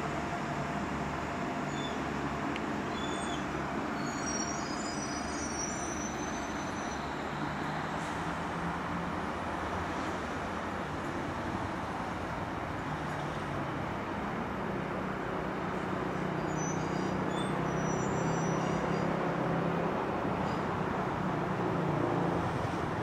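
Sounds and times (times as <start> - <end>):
train diesel engines humming: 0.0 - 14.4
faint high-pitched squeals: 2.9 - 8.1.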